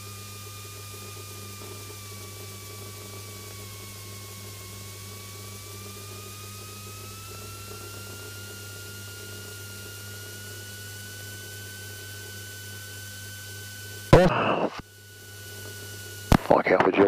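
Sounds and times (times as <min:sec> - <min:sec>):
thin whine: 0:00.0 - 0:17.0
intercom hiss and hum: 0:14.1 - 0:14.8, 0:16.2 - 0:17.0.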